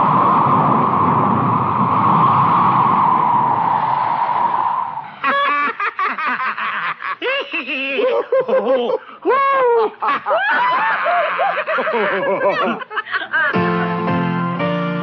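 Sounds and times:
steady rushing noise: 0.0 - 5.3
laughter in bursts: 5.2 - 13.6.

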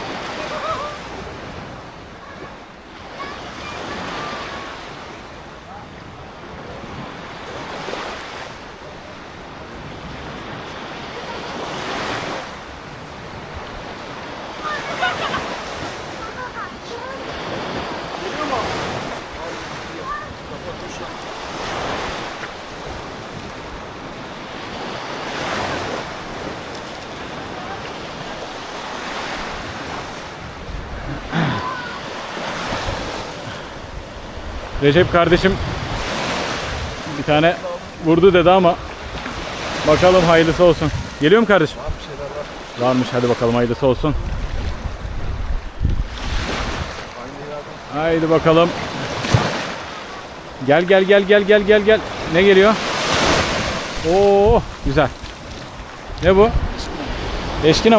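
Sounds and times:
sea waves washing ashore: 0.0 - 57.9
wind buffeting microphone: 29.4 - 42.6, 43.7 - 47.1, 53.1 - 57.9.

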